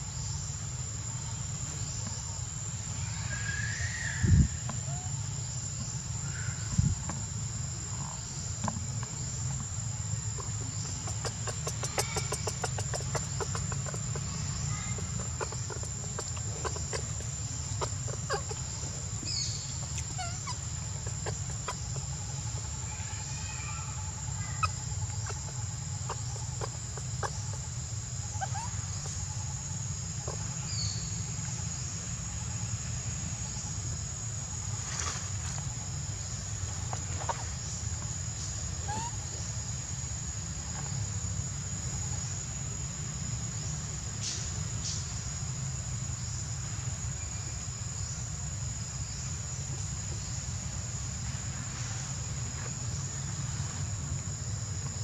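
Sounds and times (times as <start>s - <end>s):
short clucking calls: 10.4s - 18.6s.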